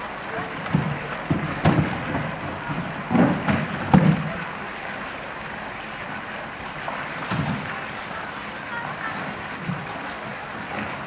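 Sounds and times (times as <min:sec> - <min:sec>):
water sloshing and splashing: 0:00.0 - 0:11.0
plastic tank knocking: 0:00.6 - 0:04.4.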